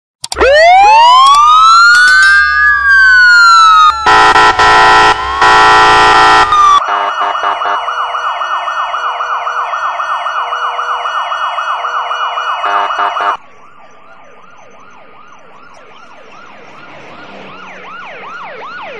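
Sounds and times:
police siren wailing: 0.3s - 18.9s
siren fast yelp: 0.4s - 18.9s
horn blasts: 4.0s - 7.8s, 12.6s - 13.4s.

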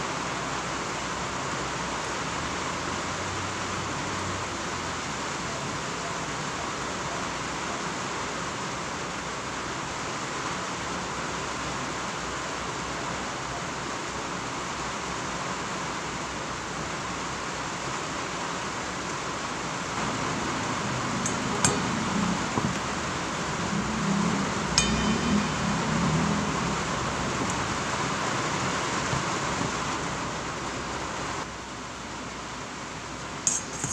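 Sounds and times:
spoon clinking on metal: 33.5s - 33.9s.

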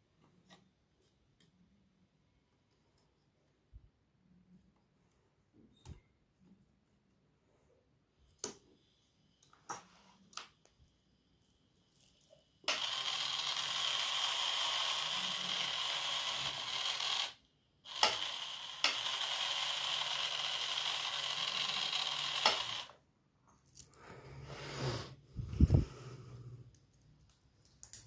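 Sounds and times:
motor and gears whirring rattle: 12.7s - 23.0s.

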